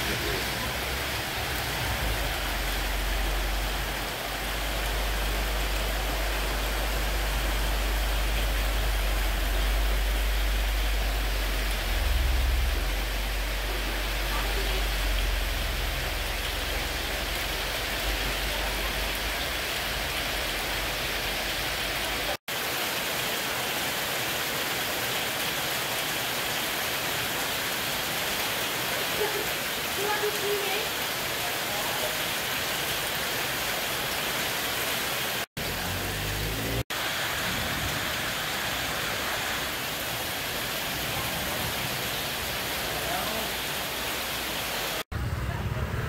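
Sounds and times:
truck engine rumble: 0.0 - 22.2, 45.1 - 46.0
heavy rain pouring: 0.0 - 46.0.

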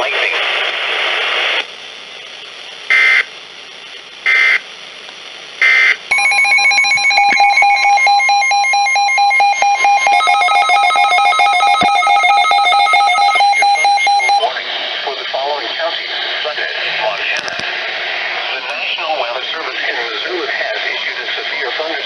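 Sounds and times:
continuous electronic alarm tones: 4.3 - 4.6, 5.6 - 14.5
short high beeps: 6.1 - 14.4.

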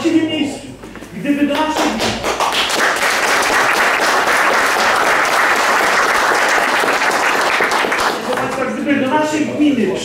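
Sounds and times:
audience applauding: 1.8 - 8.6.

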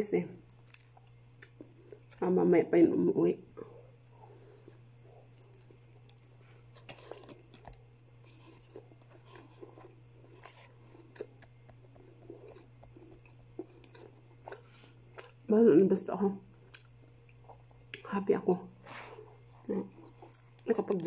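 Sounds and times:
chewing and crunching: 0.4 - 2.3, 4.2 - 15.5, 16.5 - 18.0, 19.2 - 21.0
crisp coating crackles: 19.6 - 21.0.

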